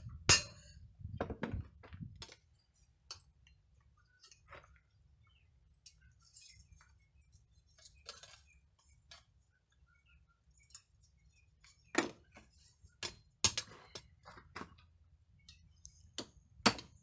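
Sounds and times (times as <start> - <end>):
metal tools clinking on steel: 5.7 - 9.4, 10.5 - 11.9.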